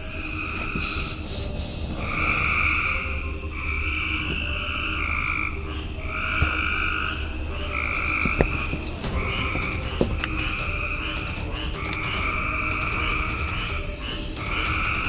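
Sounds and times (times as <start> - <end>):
frogs trilling: 0.0 - 15.0
sharp clicks: 8.1 - 15.0.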